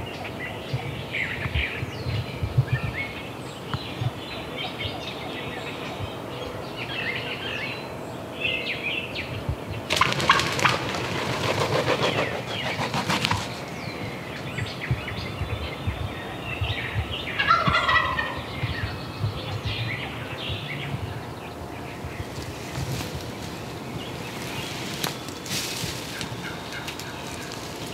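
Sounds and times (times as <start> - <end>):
songbirds chirping faintly: 0.0 - 27.9
turkey gobbling: 9.9 - 13.7, 16.9 - 18.9, 22.2 - 27.9.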